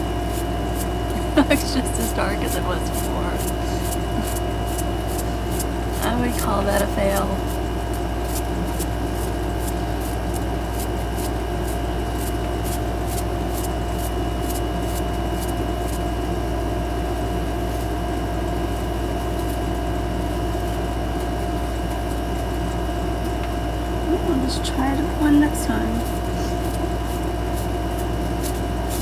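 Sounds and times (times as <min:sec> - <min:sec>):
mechanical hum and whir: 0:00.0 - 0:29.0.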